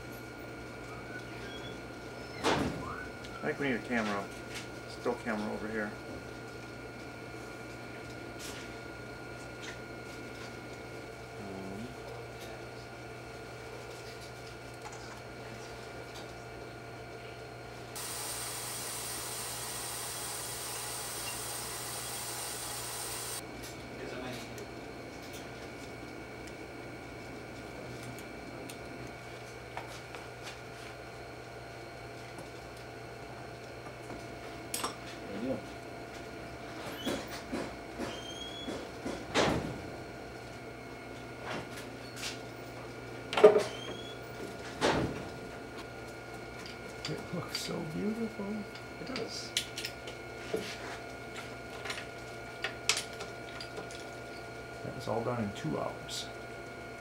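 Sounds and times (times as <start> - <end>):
air hissing: 18.0 - 23.4.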